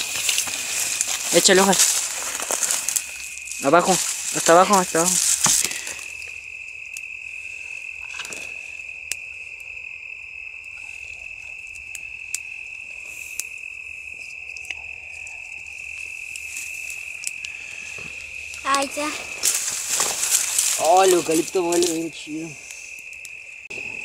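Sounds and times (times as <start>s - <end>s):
dry leaves rustling: 0.0s - 7.4s, 15.3s - 23.2s
twigs clicking: 0.0s - 9.9s, 10.5s - 23.5s
crickets chirping: 0.0s - 24.0s.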